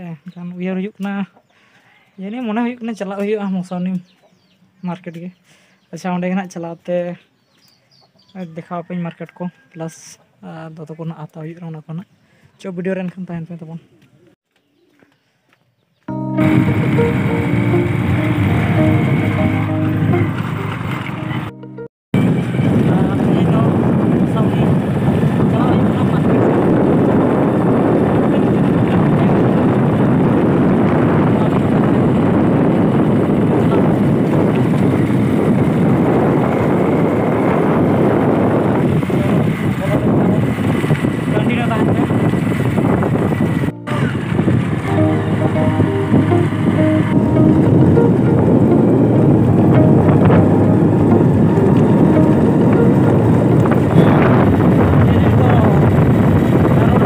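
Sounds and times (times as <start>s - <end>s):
motorcycle engine running: 16.4s - 21.5s, 22.2s - 57.0s
wind buffeting microphone: 22.2s - 57.0s.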